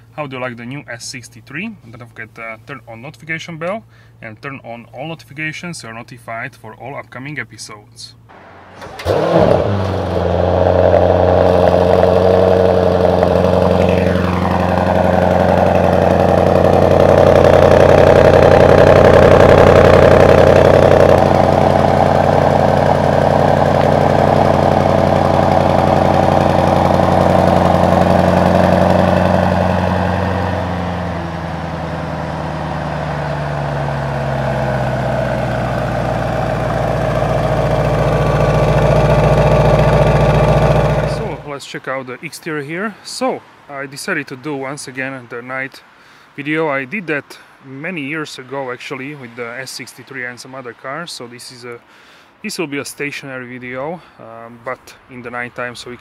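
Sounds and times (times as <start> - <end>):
car engine idling: 8.2 - 41.6.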